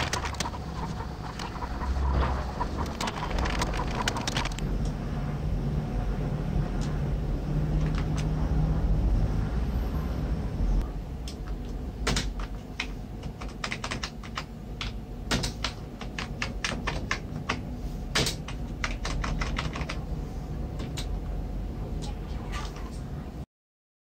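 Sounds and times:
computer mouse clicks: 0:00.0 - 0:05.0
steady low hum: 0:00.0 - 0:23.5.

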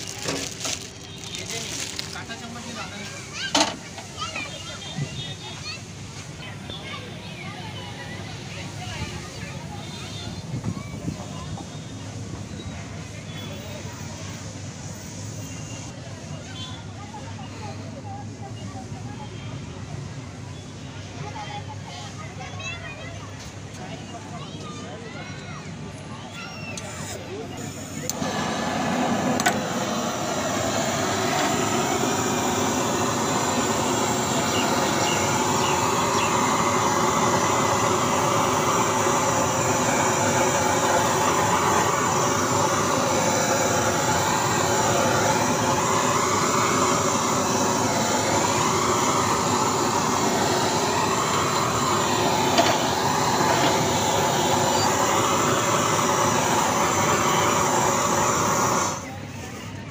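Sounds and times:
blowtorch hissing: 0:00.0 - 0:03.9, 0:26.8 - 0:59.6.

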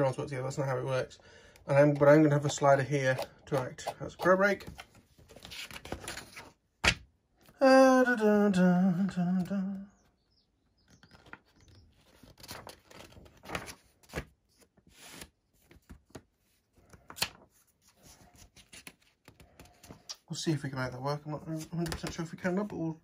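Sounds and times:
paper pages rustling: 0:01.8 - 0:07.0, 0:10.9 - 0:20.1.

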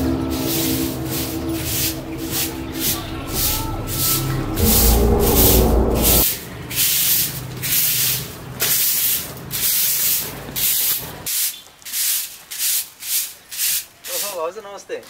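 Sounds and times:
broom sweeping concrete floor: 0:00.0 - 0:06.2, 0:06.8 - 0:14.4
background music: 0:00.0 - 0:06.3.

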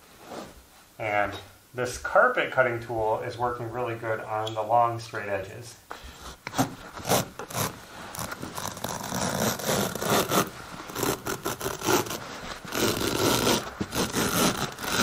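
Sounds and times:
carpet cutter scraping through carpet: 0:06.5 - 0:15.0.

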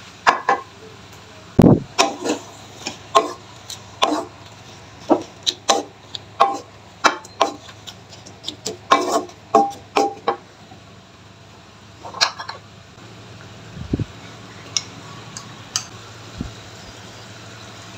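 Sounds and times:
spatula scraping a wok: 0:02.0 - 0:10.3.

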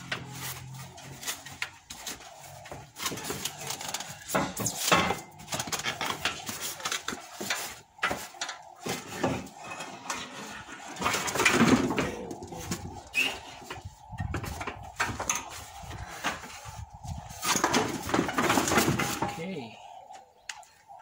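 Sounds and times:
metal knocks and clanks: 0:04.2 - 0:06.6.

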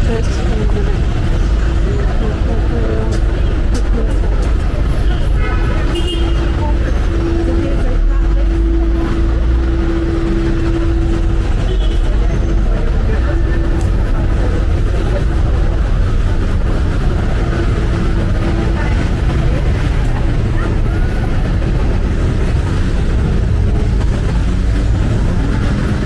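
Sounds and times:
city road traffic: 0:00.0 - 0:26.0.

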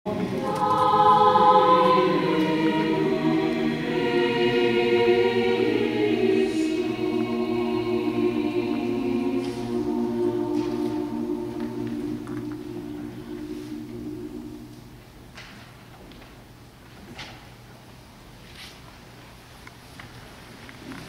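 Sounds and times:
mixed choir singing sustained chords: 0:00.1 - 0:15.3.

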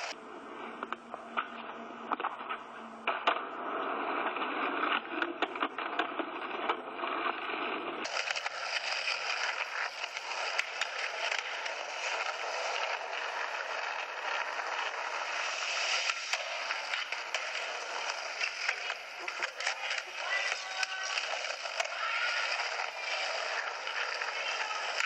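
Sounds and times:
skateboard clacks: 0:00.0 - 0:25.0
skateboard wheels rolling on concrete: 0:00.0 - 0:25.0.

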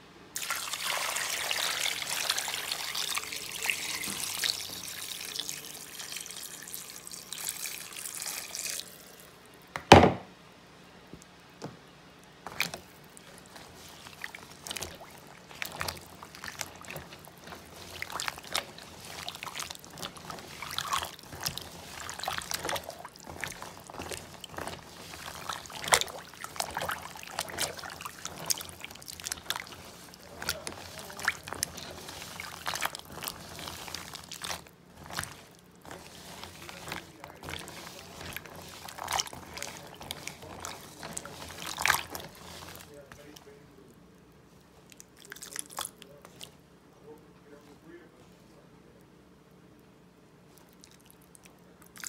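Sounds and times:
water pouring: 0:00.4 - 0:09.6, 0:12.4 - 0:43.6
loud knock: 0:09.8 - 0:10.3.

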